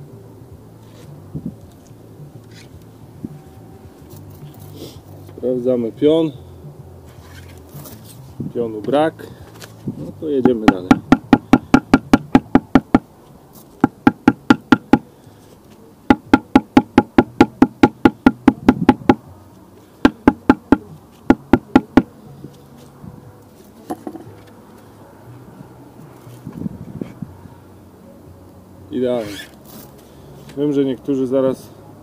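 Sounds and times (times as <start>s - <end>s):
hammer tapping masonry block: 10.4s - 13.0s, 13.8s - 15.1s, 16.1s - 19.2s, 20.0s - 22.1s.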